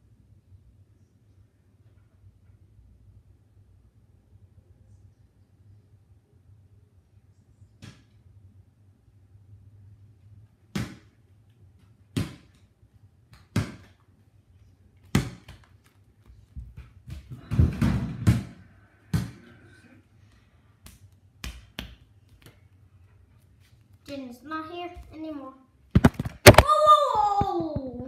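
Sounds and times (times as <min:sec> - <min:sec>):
ball bouncing on hard floor: 0:10.7 - 0:11.1, 0:12.1 - 0:12.6, 0:13.3 - 0:14.0, 0:15.0 - 0:15.7, 0:16.5 - 0:19.4, 0:20.8 - 0:22.5, 0:26.0 - 0:26.7.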